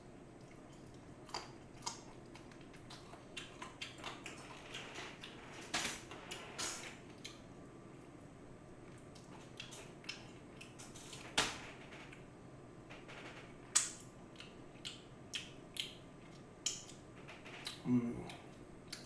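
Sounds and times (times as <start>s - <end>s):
crunching fried chicken: 0.3s - 7.5s
mouth clicks while chewing: 0.4s - 5.4s, 9.1s - 11.2s, 13.7s - 19.0s.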